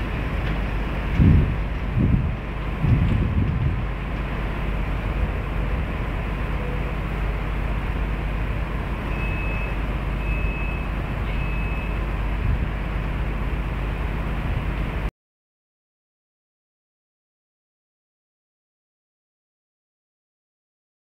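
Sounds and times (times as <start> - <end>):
diesel locomotive engine idling: 0.0 - 15.1
short high beeps: 9.1 - 12.0.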